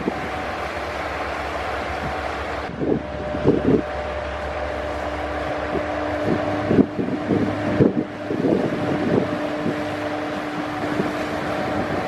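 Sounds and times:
boat engines humming: 0.0s - 12.0s
wind buffeting microphone: 0.0s - 12.0s.

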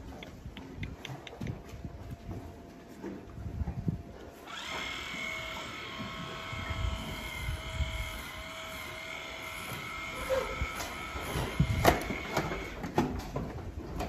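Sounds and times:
electric tool motor whine: 4.4s - 12.8s.

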